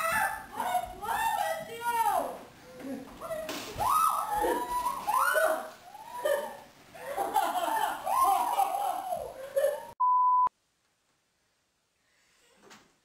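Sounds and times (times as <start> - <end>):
excited voices: 0.0 - 10.0
laughter: 6.1 - 10.0
high-pitched censor bleep: 10.0 - 10.5.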